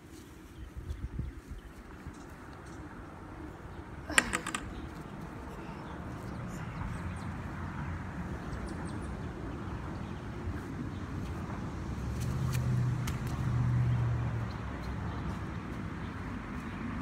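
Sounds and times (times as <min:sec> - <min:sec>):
pole clattering on concrete: 0:04.1 - 0:05.1.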